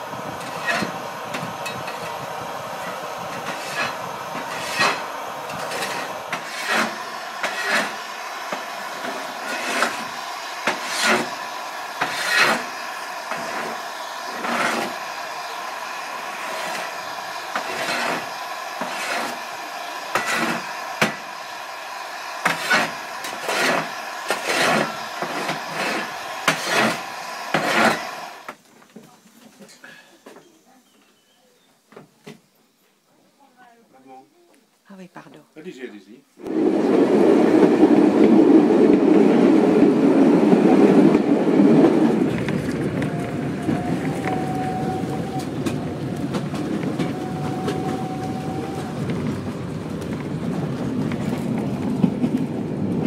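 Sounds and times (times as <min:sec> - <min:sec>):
steam engine hissing: 0:00.0 - 0:28.6, 0:36.4 - 0:53.0
shovel scraping on metal floor: 0:04.5 - 0:08.0, 0:10.7 - 0:11.3, 0:12.0 - 0:12.6, 0:22.4 - 0:28.1.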